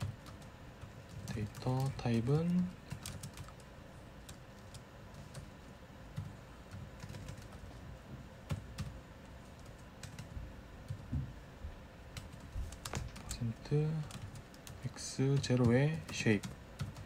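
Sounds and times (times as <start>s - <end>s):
computer keyboard typing: 0.0s - 7.8s, 8.4s - 10.3s, 12.2s - 17.0s.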